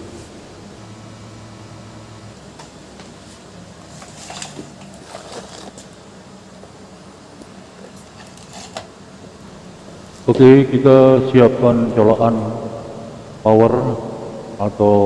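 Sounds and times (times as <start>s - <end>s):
low steady hum: 0.0s - 15.0s
cables and plastic box rustling: 3.9s - 6.0s, 7.9s - 8.9s.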